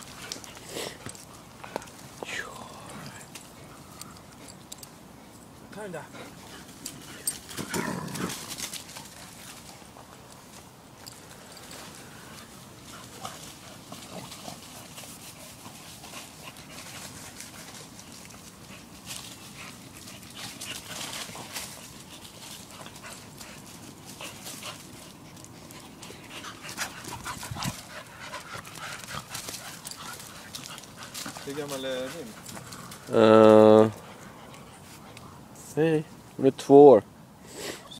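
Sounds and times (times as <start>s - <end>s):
scuffling on dirt and leaves: 5.2s - 35.3s
dog noises: 11.0s - 36.3s.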